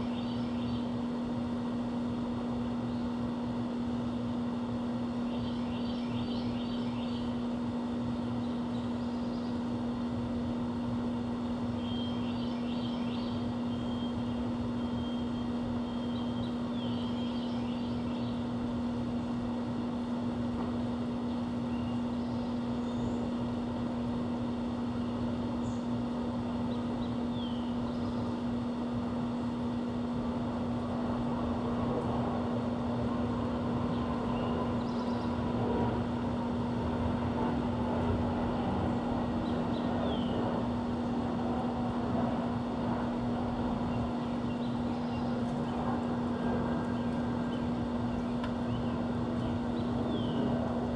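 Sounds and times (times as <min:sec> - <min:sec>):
low hum: 0:00.0 - 0:50.9
faint bird chirps: 0:05.2 - 0:07.4, 0:11.8 - 0:18.5
mechanical drone: 0:28.9 - 0:50.9.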